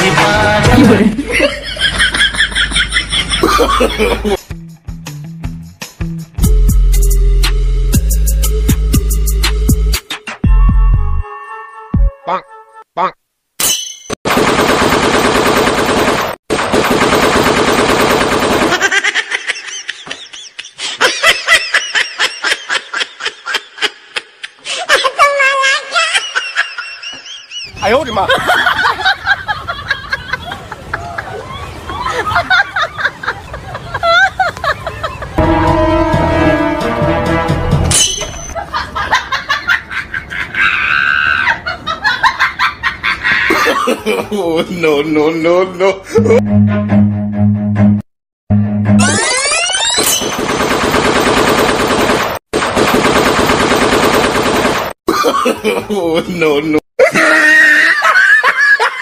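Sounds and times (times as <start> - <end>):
laughter: 0.6 - 4.4, 18.7 - 35.4, 38.6 - 45.0, 45.8 - 46.4, 55.1 - 59.0
automatic gunfire: 14.3 - 18.9, 50.3 - 54.9.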